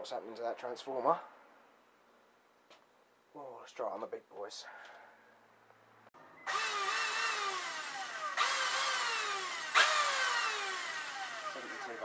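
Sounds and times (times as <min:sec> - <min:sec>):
drill motor whirring: 0:06.4 - 0:12.0.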